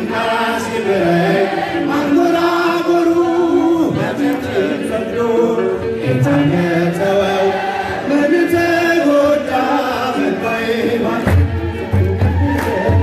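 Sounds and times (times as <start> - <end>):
men chanting a hymn: 0.0 - 12.1.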